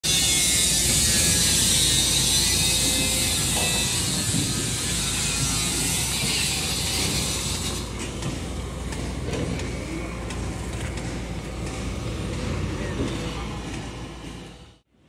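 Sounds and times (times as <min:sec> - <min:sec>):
backhoe engine running: 0:00.2 - 0:14.9.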